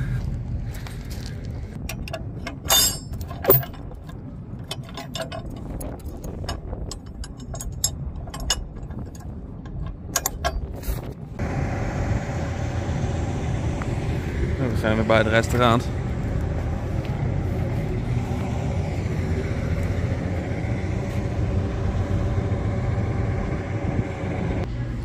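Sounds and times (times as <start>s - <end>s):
steady low rumble: 0.0s - 25.0s
chain clanking against metal and wood: 1.8s - 11.1s
loud metal clanks: 1.9s - 10.8s.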